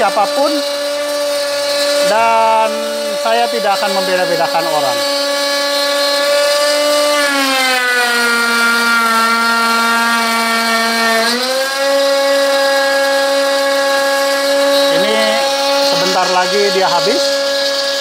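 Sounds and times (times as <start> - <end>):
router whining cutting wood: 0.0 - 18.0.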